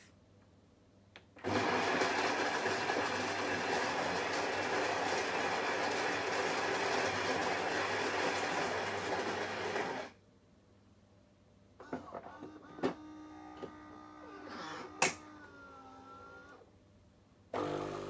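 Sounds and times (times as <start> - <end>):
coffee grinder grinding beans: 1.4 - 10.1, 17.6 - 18.0.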